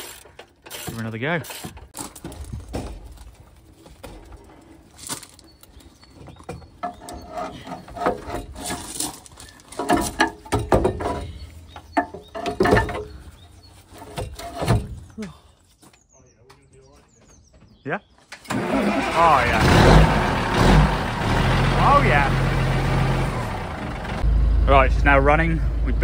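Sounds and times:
batteries clunking on metal: 0:00.0 - 0:13.3.

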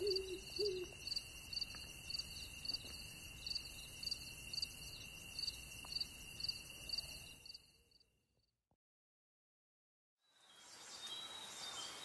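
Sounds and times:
crickets chirping: 0:00.0 - 0:08.1.

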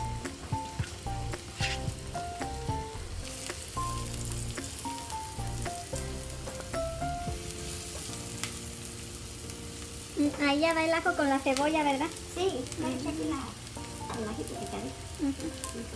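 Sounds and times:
background music of held notes: 0:00.0 - 0:15.9
onion sizzling in hot oil: 0:00.0 - 0:15.9.

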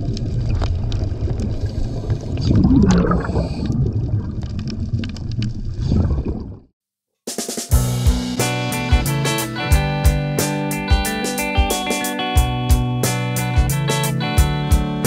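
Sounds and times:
water gurgling and sloshing: 0:00.0 - 0:06.7
acoustic guitar music: 0:07.7 - 0:15.0.

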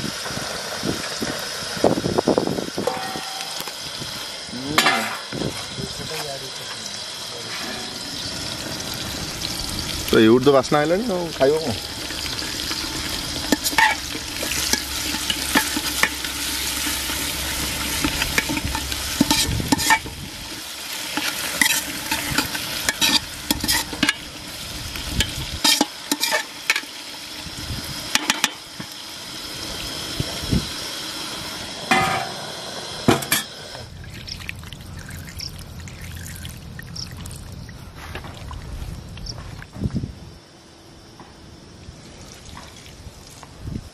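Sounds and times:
steady hiss: 0:00.0 - 0:43.9
wet squishing and stirring: 0:34.0 - 0:39.2.

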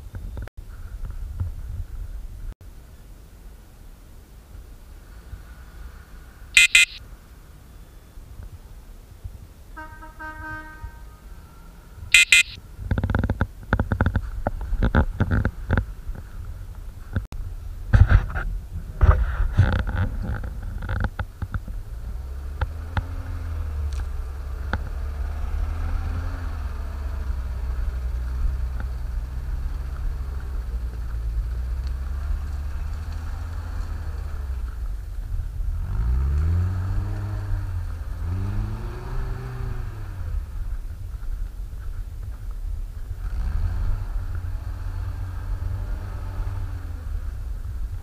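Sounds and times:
truck engine running and revving: 0:19.3 - 0:48.0.

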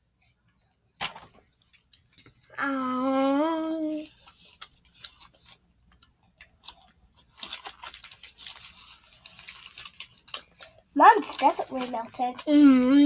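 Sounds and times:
foil wrapper crinkling: 0:03.2 - 0:13.0
child humming: 0:12.5 - 0:13.0.

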